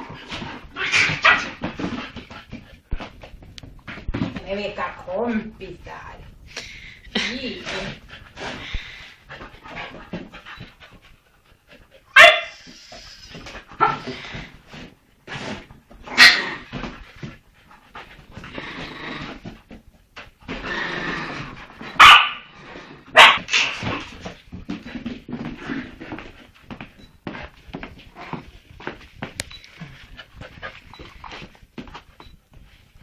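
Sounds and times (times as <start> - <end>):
dog barking sharply: 12.2 - 12.6, 22.0 - 22.4, 23.2 - 23.8.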